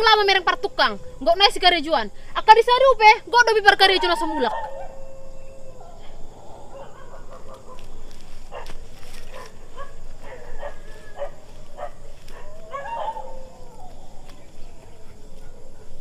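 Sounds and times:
animal calling: 3.5 - 16.0.

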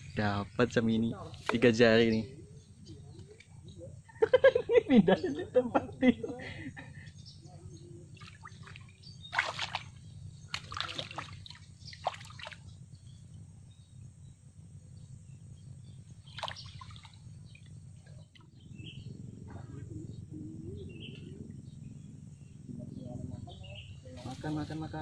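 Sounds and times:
steady low hum: 0.0 - 25.0
faint bird chirps: 5.2 - 25.0
water splashing and sloshing: 8.2 - 12.7, 16.2 - 18.5.

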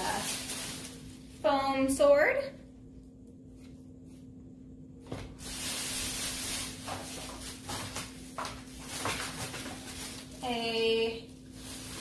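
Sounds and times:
plastic bag rustling: 0.0 - 2.0, 5.1 - 12.0.

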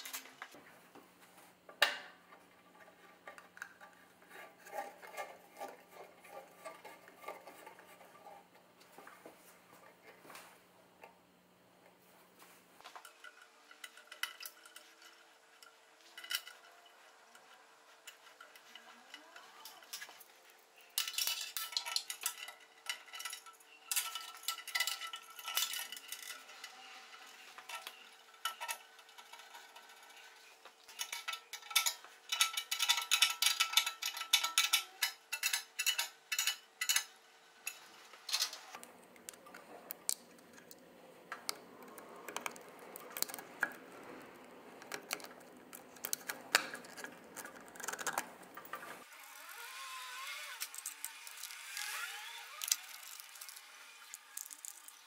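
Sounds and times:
metal tools clinking and clattering: 12.8 - 37.1.

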